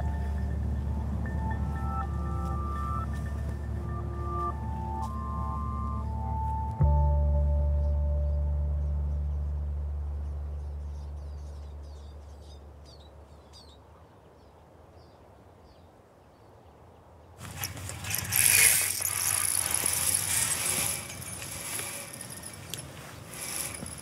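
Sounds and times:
rustling and scraping handling noise: 17.4s - 24.0s.

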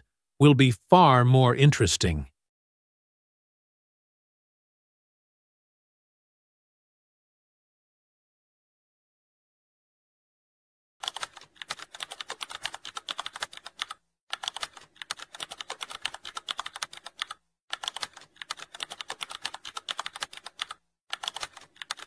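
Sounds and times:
rapid keyboard typing clicks: 11.0s - 22.0s.

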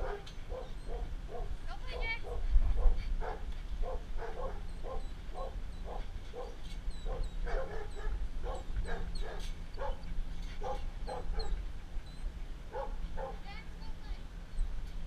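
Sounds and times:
dog barking: 0.0s - 11.6s, 12.7s - 13.4s
steady low hum: 0.0s - 15.0s.

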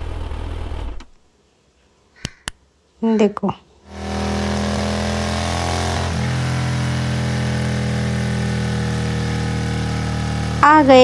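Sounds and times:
motorcycle engine running: 3.9s - 11.0s.

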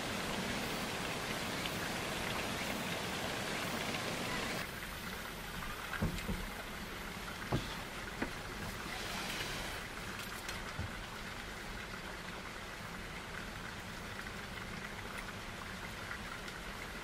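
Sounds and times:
river water rushing: 0.0s - 11.6s.

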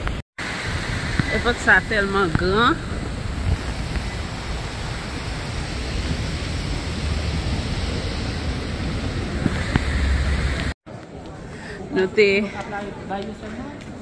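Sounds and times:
wind on microphone: 0.0s - 10.8s
road traffic: 0.0s - 14.0s.

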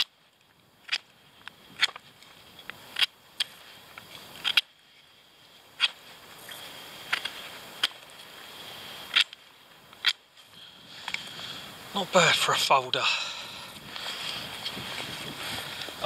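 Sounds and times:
knife carving wood: 0.8s - 1.1s, 1.8s - 2.0s, 2.9s - 3.6s, 4.4s - 4.7s, 9.1s - 9.4s, 10.0s - 10.2s.

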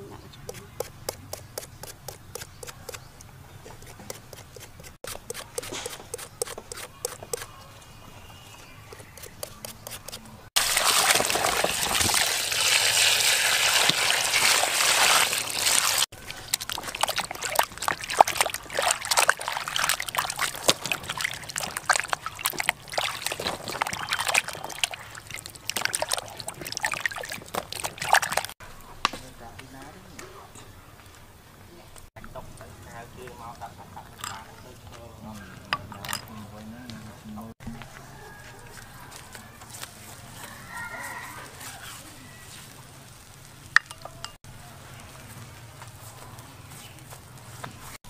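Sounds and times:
hands sloshing vegetables in water: 10.6s - 28.6s
water pouring into a basin: 10.6s - 28.6s.

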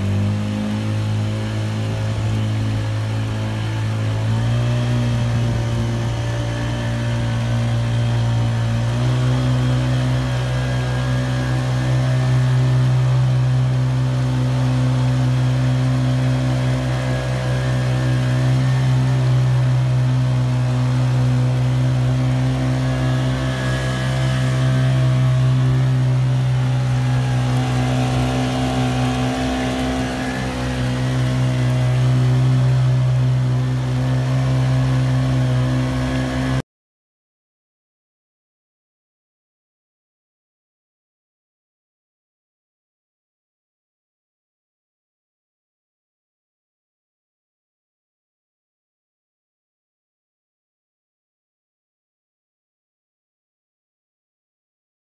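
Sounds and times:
outboard engine revving: 0.0s - 36.6s.

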